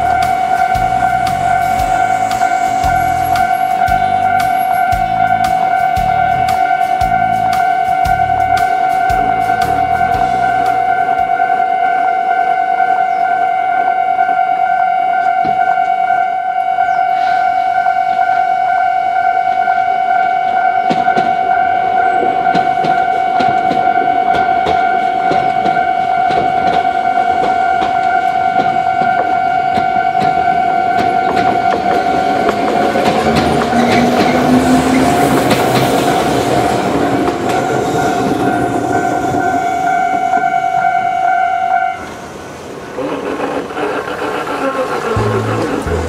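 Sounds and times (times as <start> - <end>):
train wheels clattering: 0.0 - 11.6, 20.5 - 41.2, 42.0 - 46.0
train motor whine: 0.0 - 46.0.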